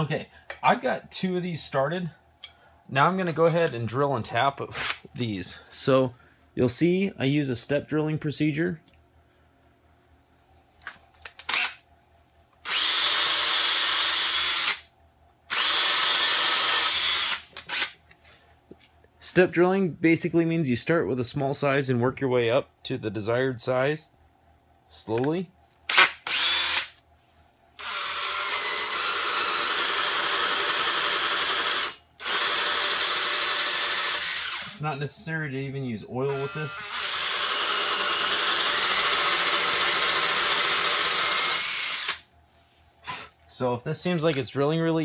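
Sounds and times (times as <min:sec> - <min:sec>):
cordless drill boring into metal: 0:12.7 - 0:14.8, 0:15.5 - 0:18.0, 0:25.9 - 0:26.9, 0:27.8 - 0:34.8, 0:36.3 - 0:42.2.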